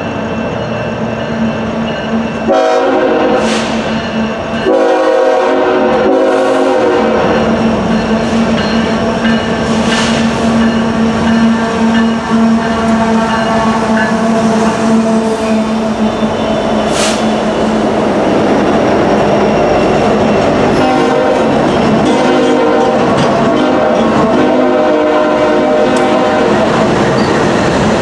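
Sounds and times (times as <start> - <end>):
locomotive engines passing: 0.0 - 28.0
train horn chord: 2.4 - 3.8, 4.6 - 7.4, 11.2 - 17.2, 20.7 - 26.8.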